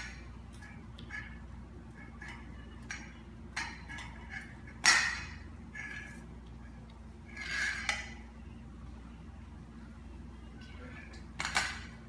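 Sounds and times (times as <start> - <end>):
bowl scraping: 0.0 - 8.6.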